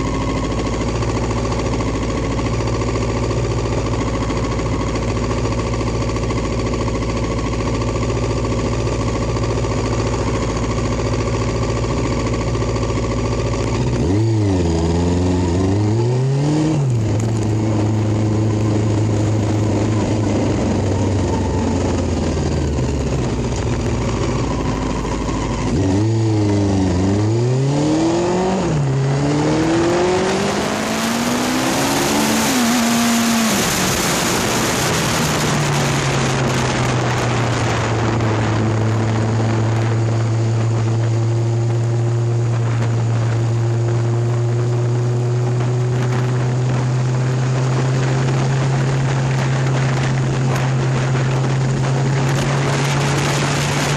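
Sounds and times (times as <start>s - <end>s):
motorcycle engine revving: 0.0s - 53.9s
wind noise on microphone: 13.9s - 53.9s.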